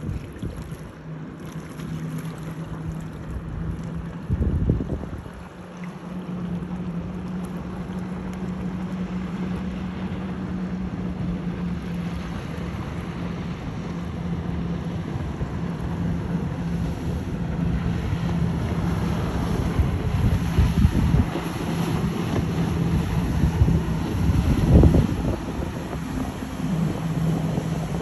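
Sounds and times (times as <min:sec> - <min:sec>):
wind on microphone: 0:00.0 - 0:00.9, 0:03.3 - 0:05.6, 0:11.1 - 0:28.0
boat engines droning: 0:00.0 - 0:28.0
rushing water: 0:00.0 - 0:28.0.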